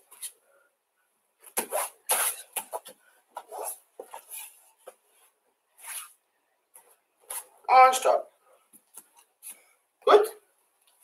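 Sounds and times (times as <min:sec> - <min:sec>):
scuffs and rustles on mats: 0:01.4 - 0:07.6.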